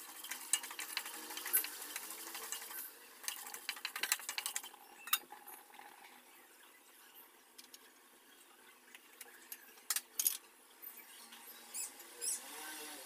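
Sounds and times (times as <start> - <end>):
lentils crackling in hot oil: 0.0 - 6.2.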